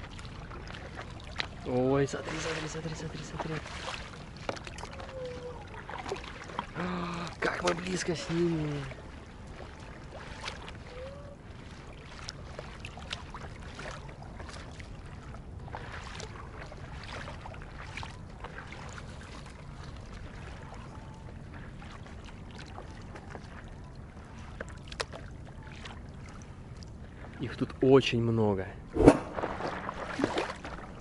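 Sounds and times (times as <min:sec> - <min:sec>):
water slapping against board: 0:00.0 - 0:06.8, 0:07.4 - 0:20.1, 0:24.5 - 0:26.0, 0:28.9 - 0:31.0
small sharp splashes: 0:00.0 - 0:20.8, 0:24.4 - 0:26.9, 0:28.9 - 0:31.0.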